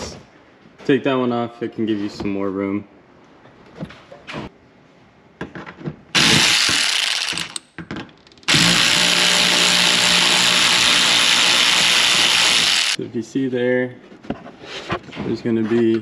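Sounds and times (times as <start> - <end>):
air ratchet running: 6.2 - 7.6, 8.5 - 13.0.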